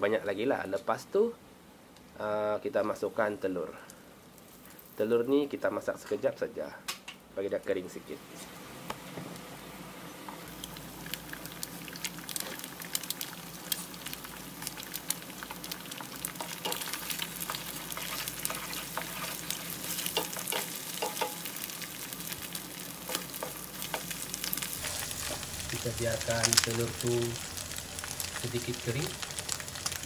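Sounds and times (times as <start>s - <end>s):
eggs sizzling in oil: 8.5s - 30.0s
wooden spatula scraping: 16.4s - 21.4s, 23.1s - 26.8s.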